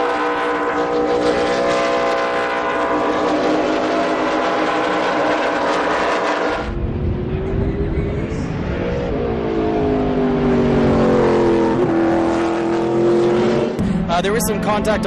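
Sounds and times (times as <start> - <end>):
racing car engines droning: 0.0 - 15.0.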